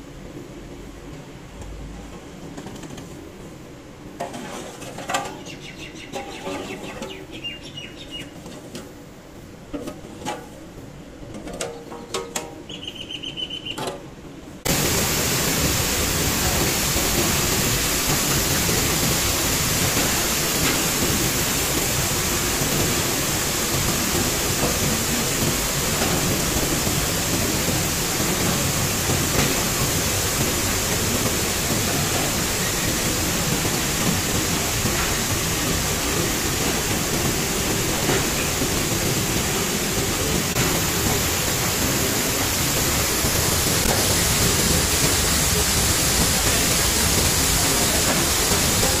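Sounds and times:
mill machinery running: 14.6s - 49.0s.

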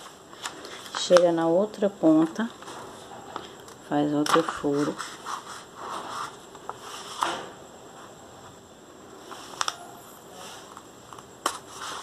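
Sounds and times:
paper rustling and crinkling: 0.0s - 1.4s, 2.2s - 7.5s, 9.3s - 12.0s.

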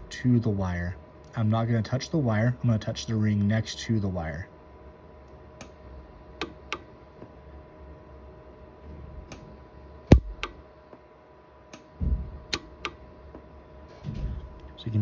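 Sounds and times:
welder snapping clicks: 6.4s - 6.9s, 10.1s - 10.6s, 12.5s - 13.0s
low thump: 12.0s - 12.4s.

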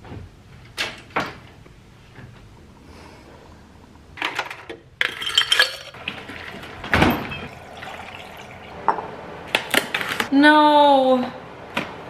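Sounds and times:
kitchen items clattering: 4.2s - 10.3s
milk pouring into a glass: 7.5s - 8.9s.

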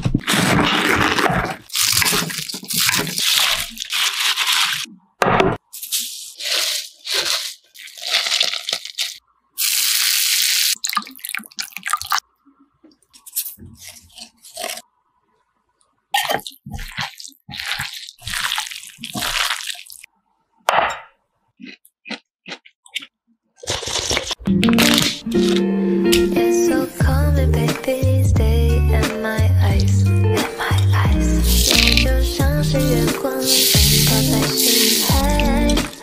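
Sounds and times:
cabbage leaves crunching and tearing: 0.0s - 4.9s, 5.8s - 10.6s, 13.3s - 14.8s, 16.4s - 20.1s, 23.6s - 25.6s, 31.4s - 36.0s
wet squishing in glass bowl: 5.9s - 9.2s, 16.2s - 20.1s, 33.5s - 36.0s.

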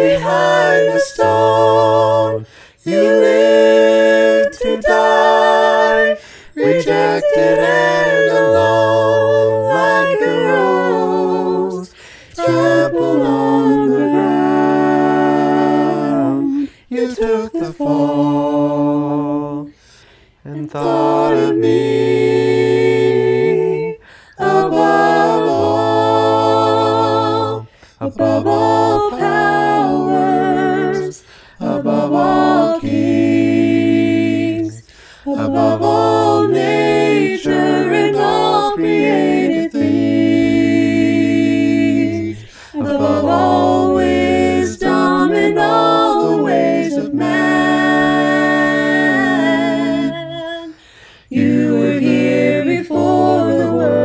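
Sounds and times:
voices singing a cappella: 0.0s - 54.0s
singers breathing: 2.4s - 2.8s, 6.2s - 6.6s, 11.9s - 12.4s, 19.7s - 20.5s, 24.0s - 24.4s, 27.7s - 28.0s, 31.2s - 31.6s, 34.8s - 35.3s, 42.4s - 42.8s, 50.7s - 51.3s.

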